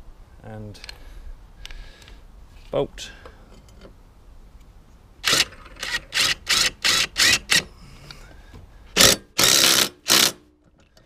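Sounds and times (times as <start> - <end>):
cordless drill driving bolt: 5.2 - 7.7, 9.0 - 10.4.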